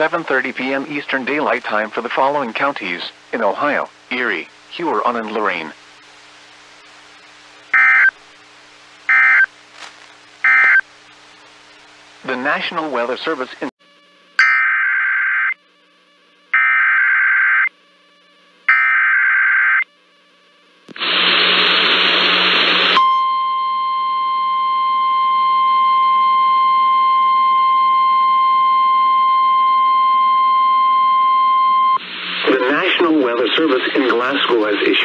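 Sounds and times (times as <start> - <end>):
steady alarm tone: 7.8 - 8.1, 9.1 - 9.5, 10.4 - 10.8, 14.4 - 20.3, 22.9 - 33.4
data tone bursts: 7.8 - 8.2, 9.1 - 9.5, 10.4 - 10.8, 14.4 - 15.6, 16.5 - 17.7, 18.7 - 19.9, 22.9 - 34.1
burst of noise: 20.9 - 23.0.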